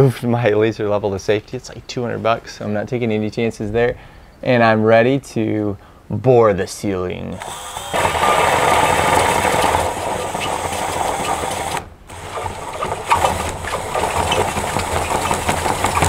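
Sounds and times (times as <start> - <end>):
drill cutting with hole saw: 7.3 - 16.0.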